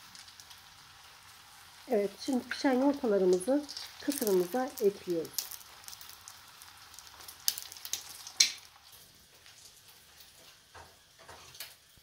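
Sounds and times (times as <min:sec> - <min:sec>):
eggs sizzling in oil: 0:00.0 - 0:12.0
crackling pops: 0:03.2 - 0:10.3.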